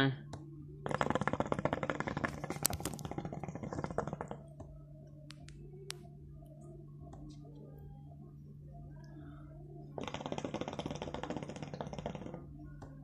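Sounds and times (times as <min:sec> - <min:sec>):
faint low hum: 0:00.0 - 0:13.0
hookah water bubbling: 0:00.8 - 0:04.6, 0:10.0 - 0:12.6.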